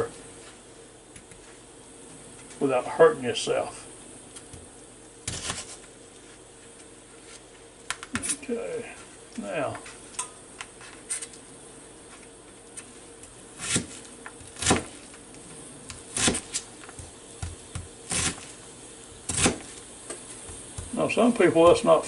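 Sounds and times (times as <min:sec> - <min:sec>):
knife chopping onion on cutting mat: 0:05.3 - 0:05.8, 0:13.6 - 0:15.0, 0:15.9 - 0:18.5, 0:19.1 - 0:21.0.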